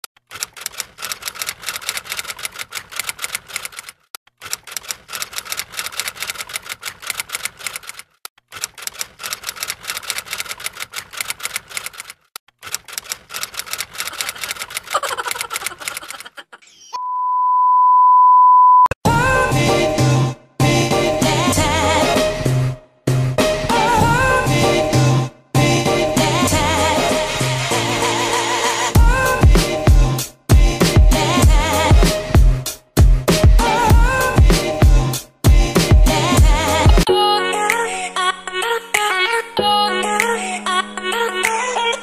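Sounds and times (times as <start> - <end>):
typewriter key clacks: 0.2 - 16.3
steady high beep: 17.0 - 18.9
upbeat background music: 19.1 - 42.0.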